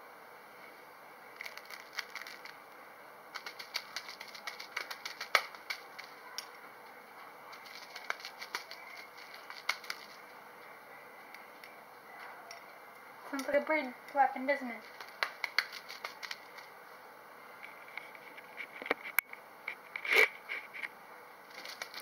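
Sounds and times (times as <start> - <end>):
cat batting a toy: 3.4 - 6.5, 7.5 - 10.2.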